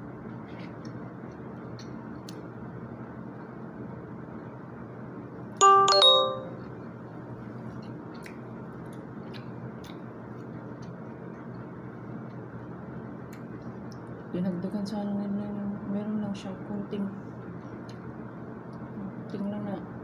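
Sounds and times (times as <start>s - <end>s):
two-note doorbell chime: 5.6s - 6.6s.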